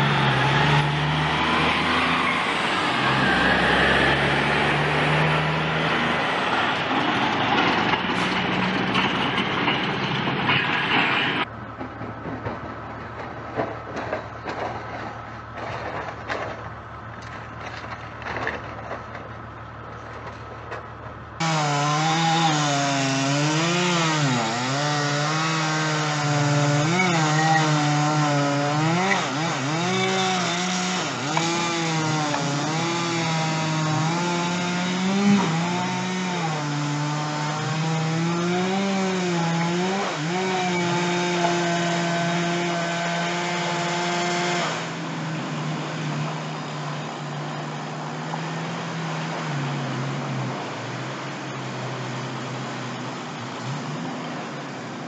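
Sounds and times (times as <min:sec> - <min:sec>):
chainsaw cutting wood: 0:21.4 - 0:46.7.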